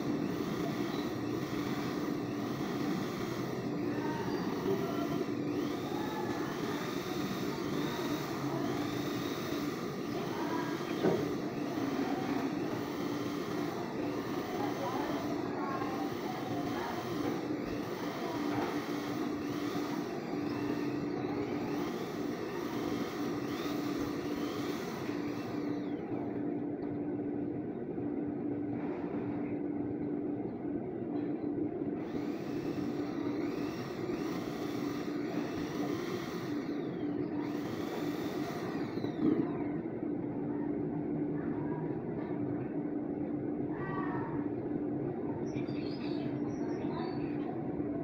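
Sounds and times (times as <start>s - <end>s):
electric drill spinning: 0.0s - 27.5s, 31.8s - 40.9s
steady mechanical drone: 0.0s - 48.0s.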